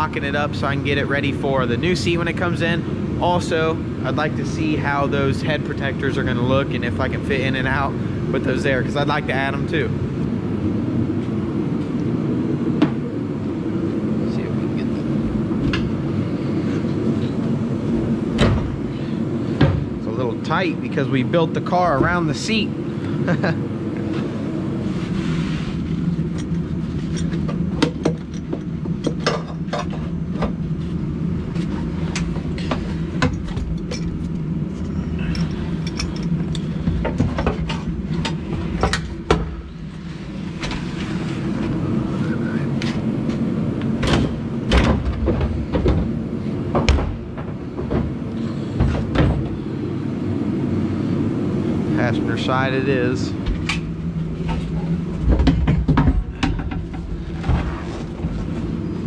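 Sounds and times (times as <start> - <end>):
steady low hum: 0.0 - 59.0
metal seat clanking and knocking: 55.2 - 58.3.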